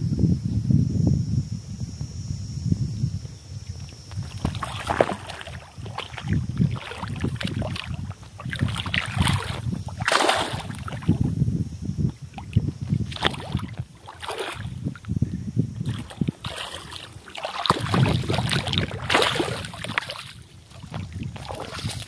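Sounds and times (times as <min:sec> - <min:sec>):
fish splashing in water: 0:04.2 - 0:11.3, 0:12.4 - 0:15.0, 0:15.8 - 0:22.0.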